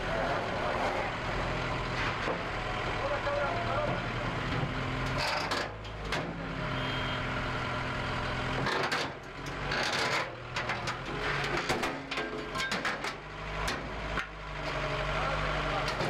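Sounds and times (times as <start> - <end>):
heavy vehicle engine running: 0.0 - 16.0
knocks and clatter: 8.6 - 14.3.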